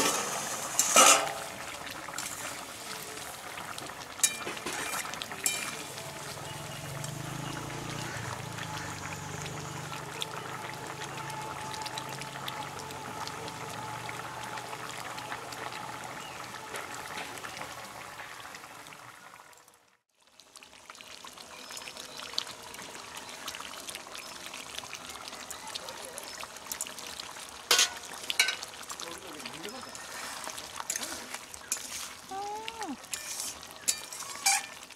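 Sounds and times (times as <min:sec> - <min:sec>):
metal ladle scraping pan: 0:00.0 - 0:02.7, 0:04.2 - 0:06.0, 0:27.7 - 0:28.7, 0:29.9 - 0:32.3, 0:33.0 - 0:34.9
curry bubbling: 0:00.0 - 0:34.9.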